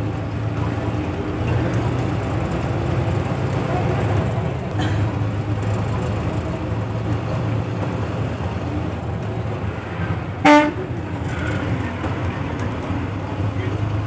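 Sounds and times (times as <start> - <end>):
bus engine drone: 0.0 - 14.0
road noise: 0.0 - 14.0
vehicle horn: 10.4 - 10.9.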